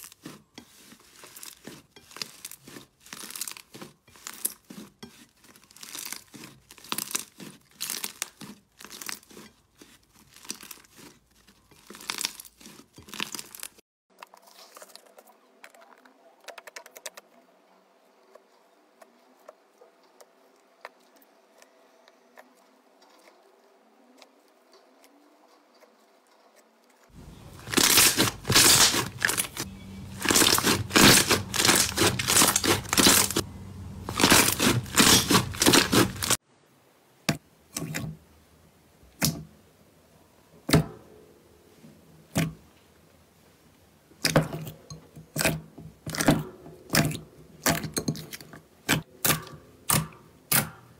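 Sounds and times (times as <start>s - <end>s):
slime crackling and popping: 0.0s - 16.0s, 27.4s - 36.4s.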